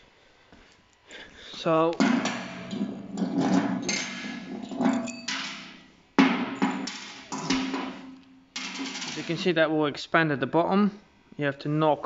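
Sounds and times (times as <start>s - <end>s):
steel bolt knocking on metal plate: 2.0s - 9.3s.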